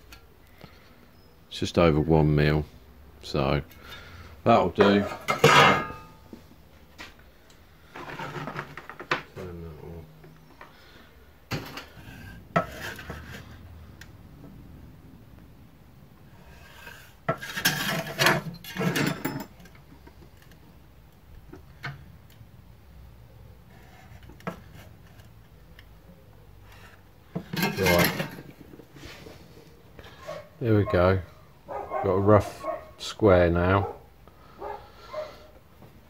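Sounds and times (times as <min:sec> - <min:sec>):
sheet metal clattering on workbench: 0:04.8 - 0:06.2, 0:17.3 - 0:19.6, 0:27.4 - 0:28.6.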